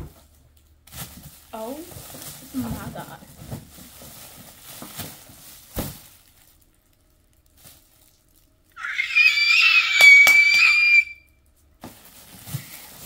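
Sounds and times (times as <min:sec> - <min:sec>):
girl squealing excitedly: 0:08.8 - 0:11.3.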